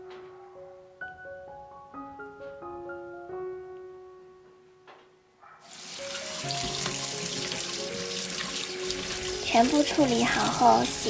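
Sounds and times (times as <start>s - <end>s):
gentle background music: 0.0s - 11.0s
hand rinsing prawns: 5.7s - 11.0s
tap water splashing in sink: 6.0s - 11.0s.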